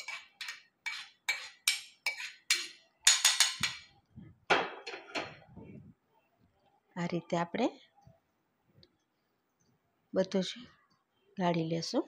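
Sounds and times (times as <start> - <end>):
spoon scraping and clinking: 0.0 - 3.9.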